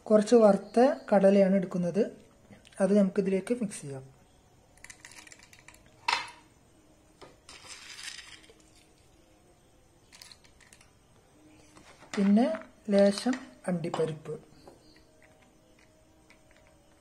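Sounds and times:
peanuts clicking into a glass: 4.8s - 6.4s.

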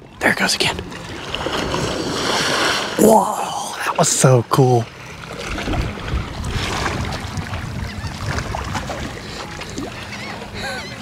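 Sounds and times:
wind rumbling on microphone: 5.3s - 11.0s.

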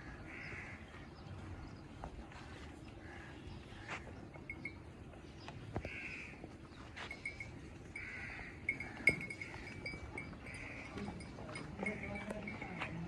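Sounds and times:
soft animal sounds: 5.5s - 13.0s.

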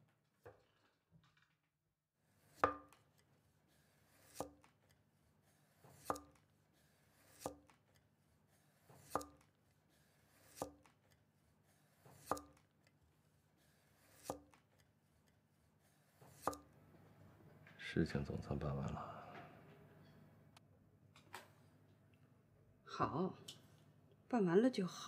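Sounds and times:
knife chopping on wooden block: 2.6s - 3.0s, 4.2s - 4.8s, 5.8s - 6.4s, 7.2s - 7.8s, 8.8s - 9.5s, 10.4s - 11.0s, 12.0s - 12.7s, 14.1s - 14.7s, 16.3s - 16.7s.

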